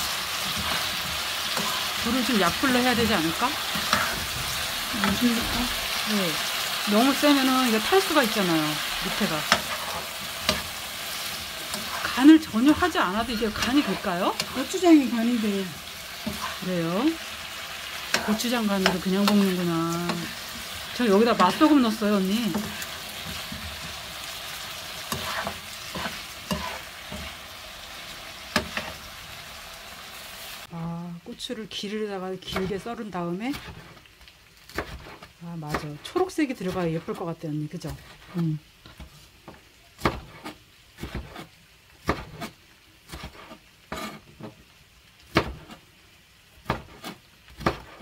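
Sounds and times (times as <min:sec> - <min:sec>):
potatoes sizzling in frying pan: 0:00.0 - 0:48.0
spoon scraping a pan: 0:00.2 - 0:29.2, 0:33.5 - 0:34.1, 0:34.8 - 0:39.3, 0:40.0 - 0:44.6
knife chopping on cutting board: 0:40.0 - 0:42.5, 0:45.3 - 0:45.8, 0:46.6 - 0:48.0.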